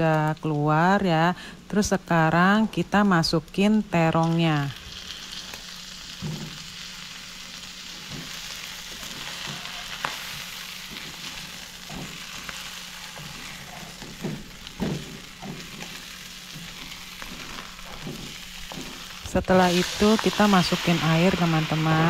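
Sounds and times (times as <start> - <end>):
eggplants sizzling in oil: 0.0 - 22.0
spatula knocking and scraping pan: 6.2 - 6.7, 8.0 - 19.5.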